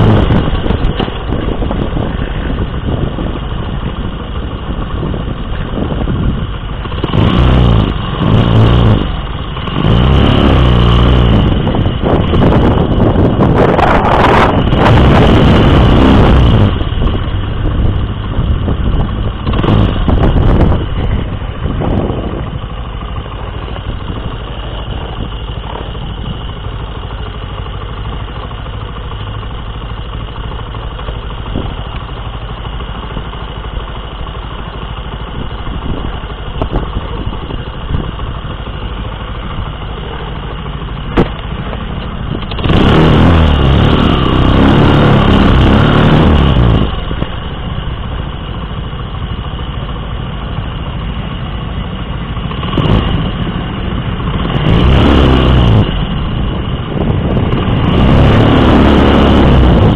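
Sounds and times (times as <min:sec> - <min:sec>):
wind noise: 0:00.0 - 0:26.7, 0:35.3 - 0:38.5, 0:52.6 - 0:59.9
motorcycle engine running: 0:00.0 - 0:59.9.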